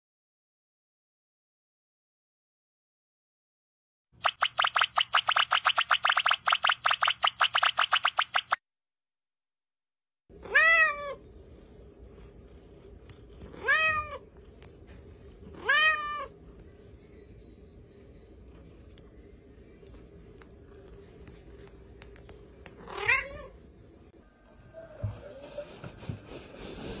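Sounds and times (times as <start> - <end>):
cat meowing: 10.4 - 11.2, 13.6 - 14.2, 15.6 - 16.3.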